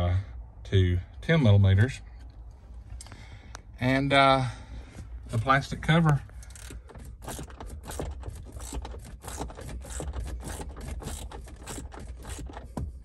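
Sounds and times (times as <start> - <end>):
hand ratchet clicking: 6.4 - 12.9.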